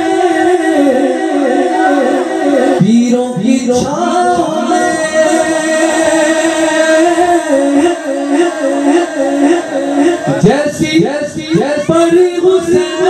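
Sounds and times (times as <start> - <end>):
man singing through a microphone: 0.0 - 13.0.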